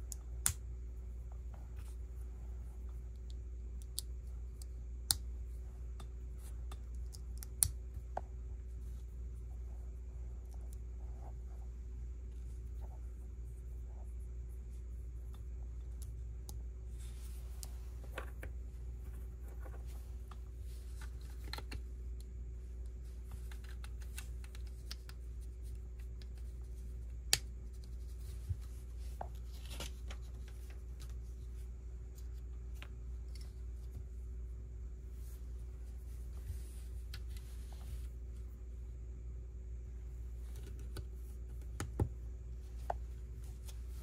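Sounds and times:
low steady hum: 0.0s - 44.0s.

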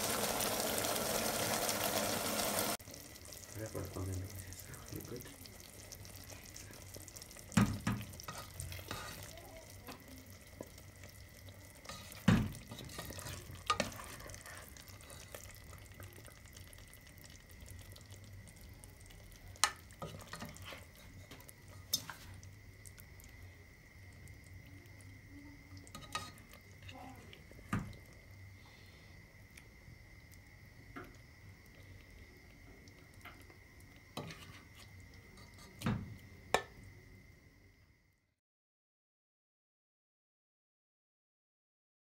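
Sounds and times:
faint low simmer: 0.0s - 38.4s
spoon stirring thick curry: 7.2s - 9.3s, 10.4s - 17.0s, 19.2s - 22.4s, 34.2s - 35.8s.

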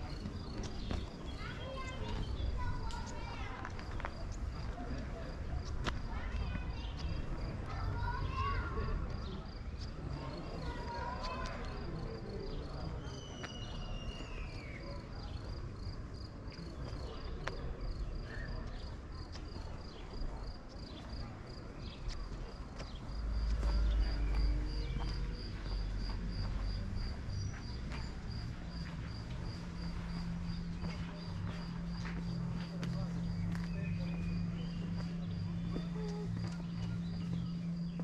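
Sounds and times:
cricket chirping: 19.5s - 38.0s.

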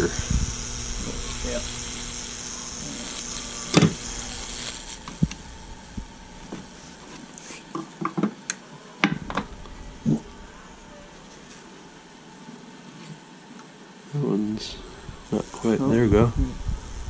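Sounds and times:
electric crackles and pops: 0.0s - 7.4s
electrical hiss and hum: 0.0s - 17.0s.

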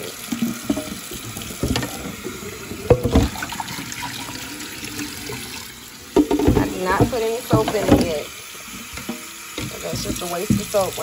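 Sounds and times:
water sloshing in a pot: 0.0s - 11.0s
scraping pot bottom: 6.1s - 10.9s.

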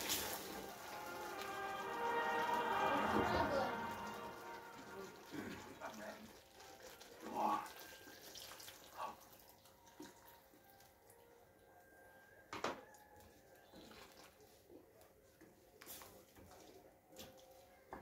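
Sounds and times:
liquid pouring into pan: 0.0s - 10.5s.

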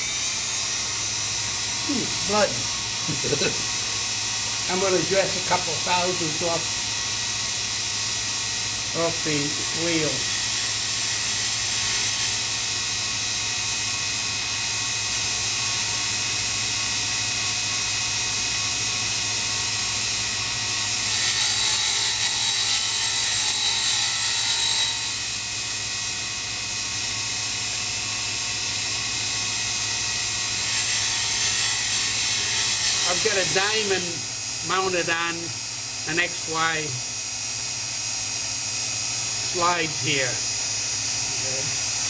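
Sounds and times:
grinder motor hum and hiss: 0.0s - 42.0s.

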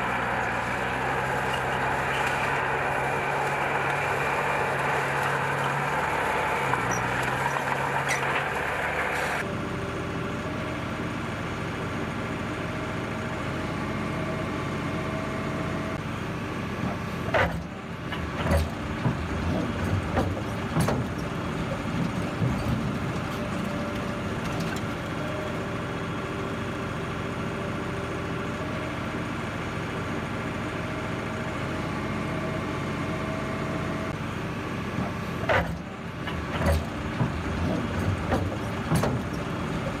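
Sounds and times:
diesel engine running: 0.0s - 40.0s
metal knocks and clanks: 16.8s - 25.1s, 35.0s - 40.0s.

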